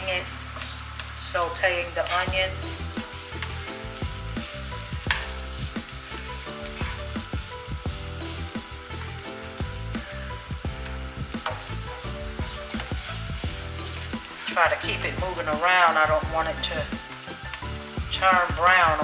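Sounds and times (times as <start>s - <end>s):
onion sizzling in frying pan: 0.0s - 19.0s
utensil scraping pan: 2.0s - 9.1s, 11.4s - 15.2s.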